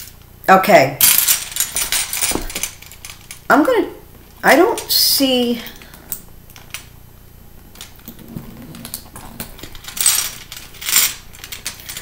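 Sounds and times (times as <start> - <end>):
metal chain strap clinking: 1.0 - 3.3, 9.6 - 12.0.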